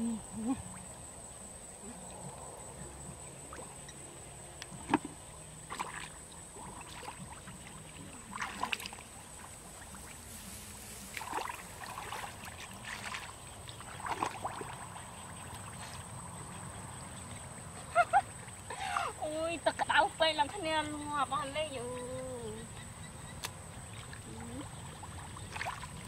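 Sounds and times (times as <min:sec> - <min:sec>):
splashing muddy water: 0:04.7 - 0:20.8, 0:23.4 - 0:26.0.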